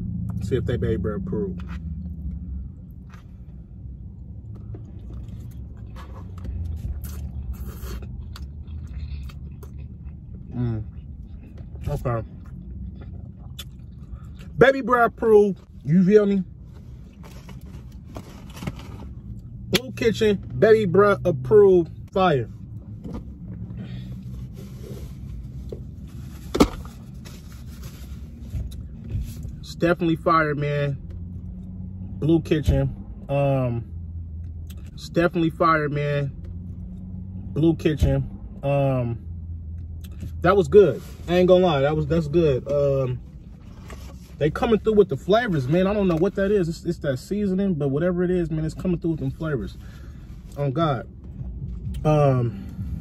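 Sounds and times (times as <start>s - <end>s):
steady low rumble: 0.0s - 53.0s
chewing: 4.5s - 14.5s.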